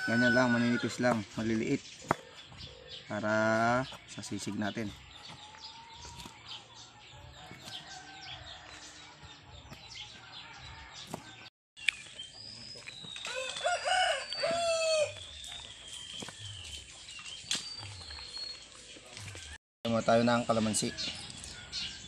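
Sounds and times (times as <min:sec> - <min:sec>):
rooster crowing: 0:00.0 - 0:01.0, 0:13.3 - 0:15.2
small birds chirping: 0:00.0 - 0:22.0.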